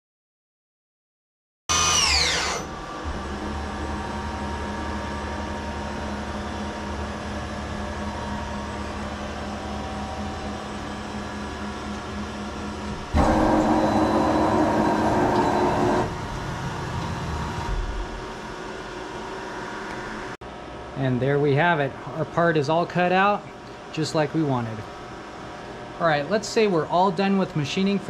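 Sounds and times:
rough mechanical whirr: 0:01.7 - 0:19.4
milling machine hum: 0:01.7 - 0:20.4.

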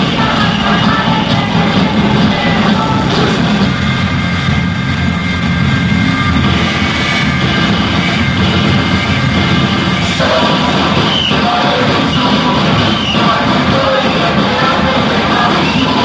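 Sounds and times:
roar of crowd voices: 0:06.1 - 0:16.0.

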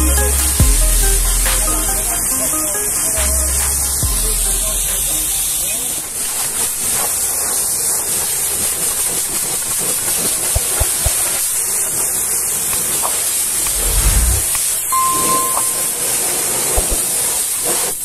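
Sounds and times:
low rumble: 0:13.6 - 0:14.5.

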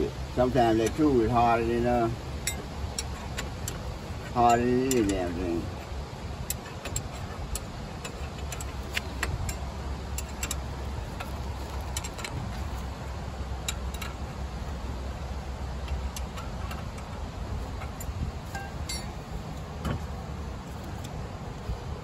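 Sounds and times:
ratchet wrench clicking: 0:02.4 - 0:05.6, 0:06.4 - 0:12.5, 0:13.6 - 0:14.8, 0:15.8 - 0:19.2.

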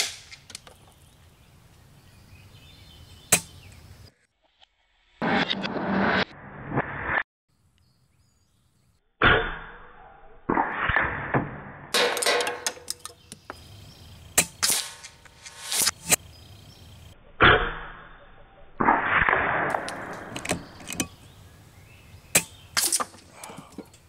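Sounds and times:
small clicks and knocks: 0:12.1 - 0:13.6, 0:19.7 - 0:21.2
air rifle shots: 0:14.4 - 0:16.2, 0:18.8 - 0:21.1.

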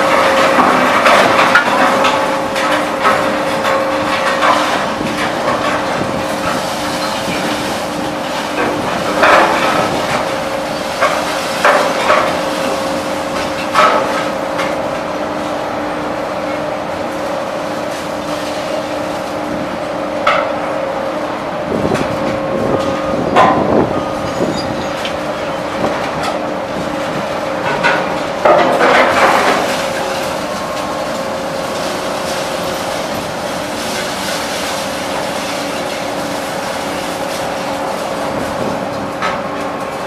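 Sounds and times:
machinery hum: 0:00.0 - 0:40.0
scrap metal clattering and crashing: 0:27.6 - 0:36.1.

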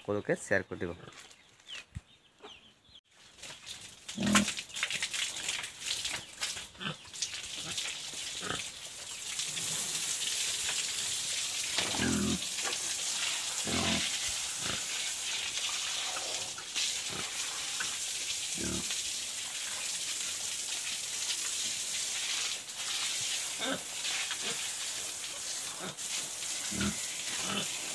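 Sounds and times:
brush scrubbing wet concrete: 0:03.2 - 0:27.9
hose spraying water: 0:03.3 - 0:27.9
pig grunting: 0:04.2 - 0:04.5, 0:08.4 - 0:08.7, 0:11.8 - 0:12.4, 0:13.6 - 0:15.0, 0:18.6 - 0:18.8, 0:26.7 - 0:27.8.

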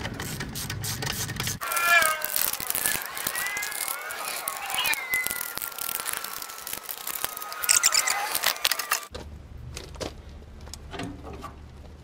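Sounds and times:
ratchet clicks: 0:00.2 - 0:09.1
thin squeal falling in pitch: 0:01.6 - 0:09.0.

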